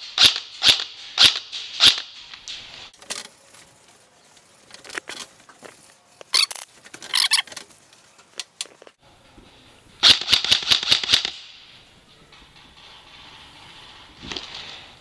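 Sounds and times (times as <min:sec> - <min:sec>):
airsoft gun shots: 0:00.0 - 0:02.2, 0:10.0 - 0:11.6.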